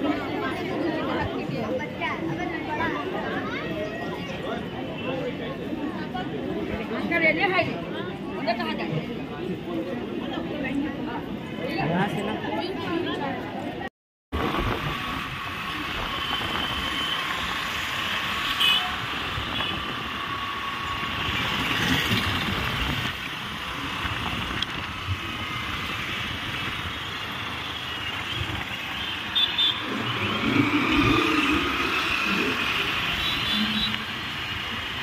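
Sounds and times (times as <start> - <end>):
traffic engines and tyres: 0.0 - 35.0.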